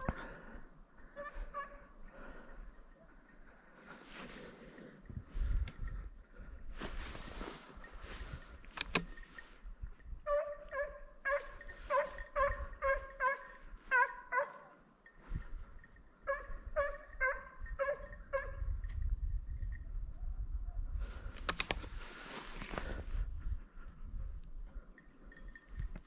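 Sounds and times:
rustle: 6.6 - 16.0, 21.0 - 24.0
sharp click: 8.7 - 9.2, 21.4 - 21.9
dog barking: 10.3 - 14.8, 16.3 - 18.6.

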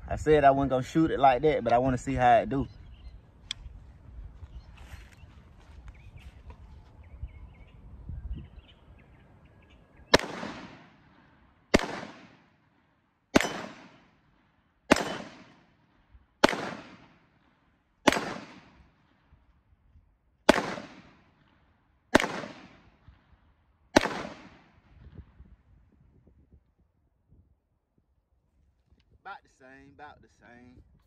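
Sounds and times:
pistol shots with echo: 10.1 - 12.6, 13.3 - 14.2, 14.9 - 15.8, 16.4 - 17.3, 18.0 - 18.9, 20.5 - 21.4, 22.1 - 23.0, 23.9 - 24.8.

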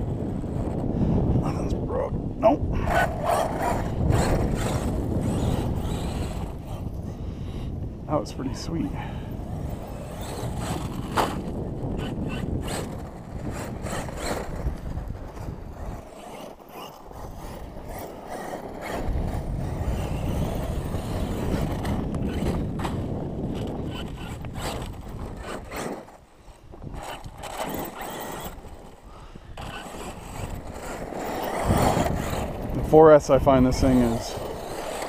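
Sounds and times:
wind rumbling on microphone: 0.0 - 35.0
crunches and scrapes on gravel: 8.2 - 35.0.

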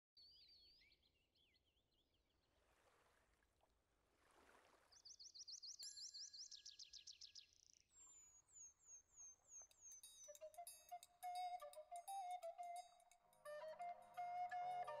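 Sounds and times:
bird chirping: 5.0 - 15.0.

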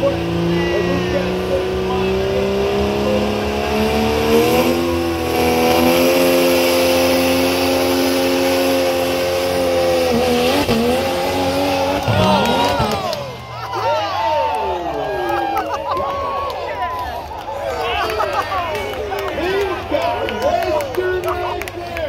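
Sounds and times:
diesel engine at high revs: 0.0 - 16.0.

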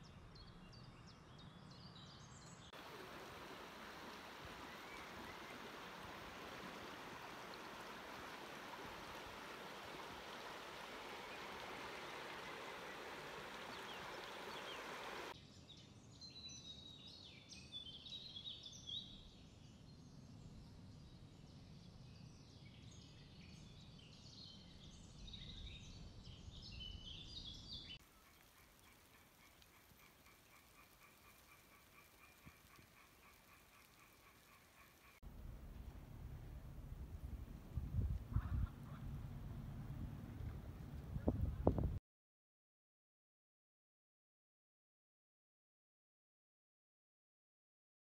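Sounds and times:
small birds chirping: 0.0 - 20.0, 21.1 - 35.2
river running over gravel: 2.8 - 15.3, 28.0 - 35.1.

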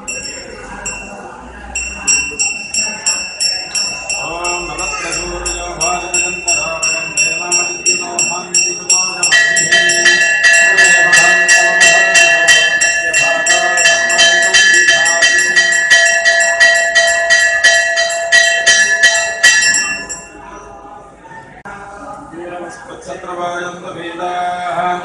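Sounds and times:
hand bell ringing: 0.0 - 1.2, 1.8 - 20.5.

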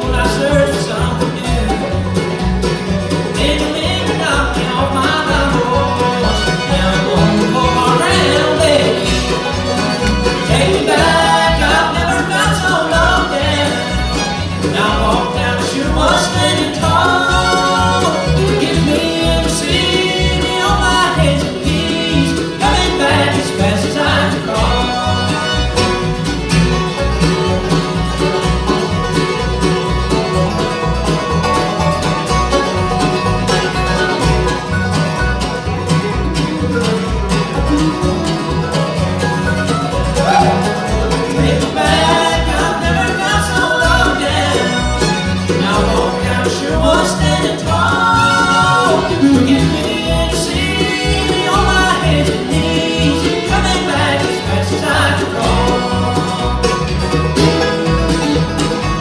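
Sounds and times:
bluegrass band playing: 0.0 - 59.0.

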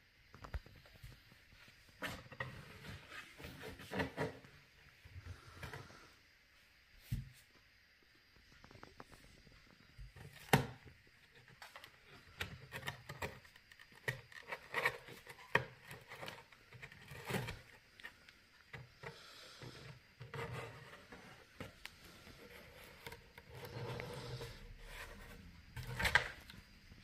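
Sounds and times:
cat claws scratching cardboard: 11.7 - 18.1.

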